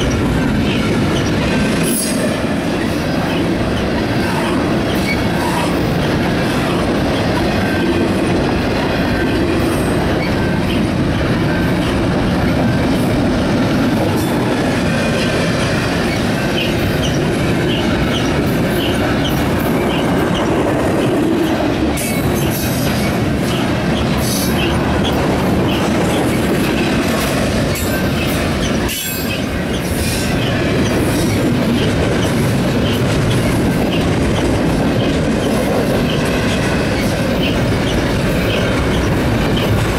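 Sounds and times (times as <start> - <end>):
rail clicks: 0.0 - 39.9
train wheels rumbling on rails: 0.0 - 39.9.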